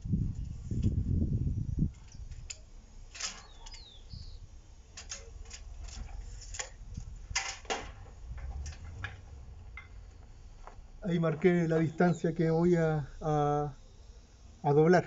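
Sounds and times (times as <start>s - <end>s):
low rumble: 6.8s - 11.0s.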